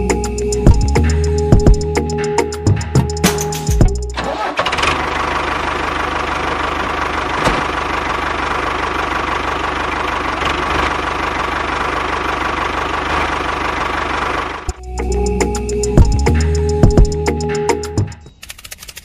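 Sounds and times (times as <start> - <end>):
sharp click: 18.4 - 19.0.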